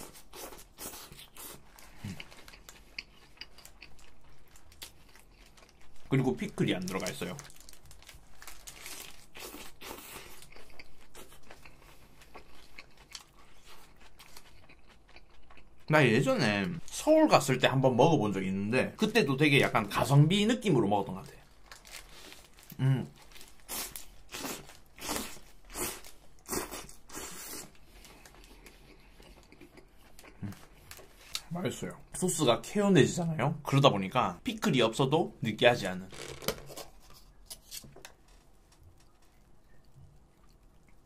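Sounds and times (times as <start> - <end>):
crunchy chewing: 0.0 - 15.9, 21.4 - 31.5.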